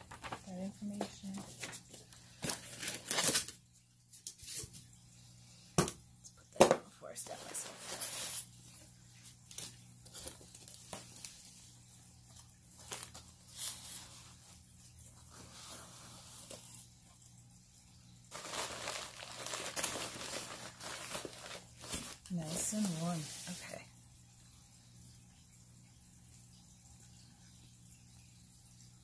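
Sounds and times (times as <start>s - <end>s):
dense crinkling: 0.0s - 3.6s, 7.0s - 16.9s, 18.3s - 23.9s
packing material rustling: 1.6s - 3.6s, 18.3s - 23.6s.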